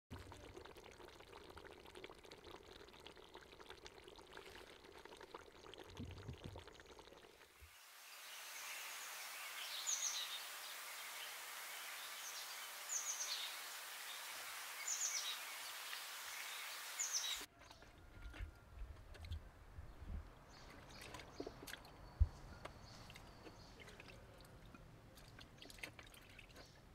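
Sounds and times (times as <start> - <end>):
steady outdoor hiss: 7.4 - 17.5
bird chirps: 8.2 - 17.8.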